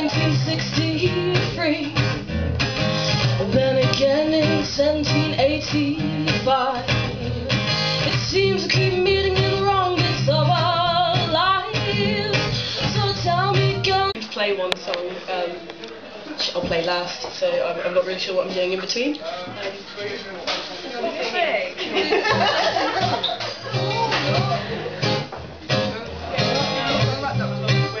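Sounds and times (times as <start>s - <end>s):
woman singing: 0.0s - 2.2s, 3.3s - 15.0s
strummed acoustic guitar: 0.0s - 14.2s, 22.4s - 28.0s.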